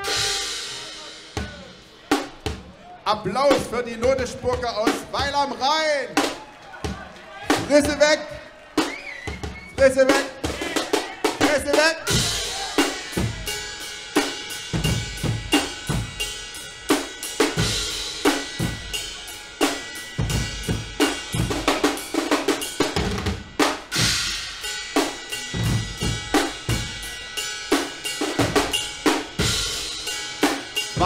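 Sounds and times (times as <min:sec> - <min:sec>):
cymbal crashes: 0:00.0 - 0:01.8
drums playing driving beat: 0:00.0 - 0:31.0.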